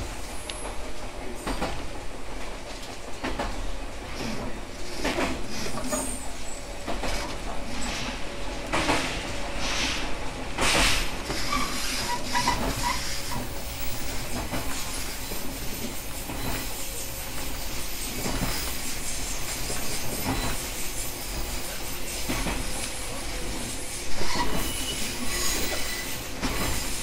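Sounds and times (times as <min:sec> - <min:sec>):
train rumble and hum: 0:00.0 - 0:27.0
train wheels knocking on rail joints: 0:08.6 - 0:09.3, 0:10.0 - 0:22.8, 0:25.5 - 0:27.0
short squeaks: 0:11.3 - 0:14.3.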